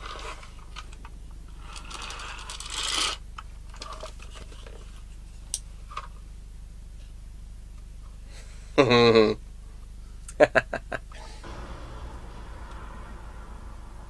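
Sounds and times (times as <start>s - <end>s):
plastic scraping rustle: 1.6s - 5.1s
steady low hum: 5.0s - 14.0s.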